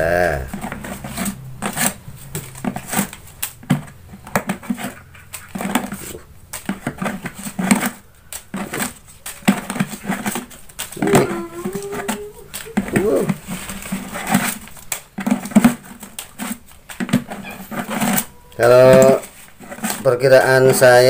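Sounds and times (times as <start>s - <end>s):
paper banknotes rustling: 0.5s - 21.0s.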